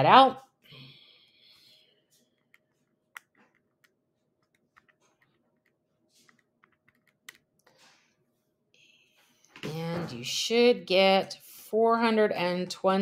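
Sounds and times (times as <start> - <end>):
keys clicking: 3.2 - 7.4.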